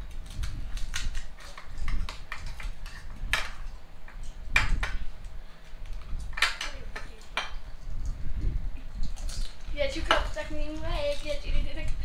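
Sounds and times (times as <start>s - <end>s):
crisp shells cracking by hand: 0.0s - 8.2s, 8.9s - 9.7s.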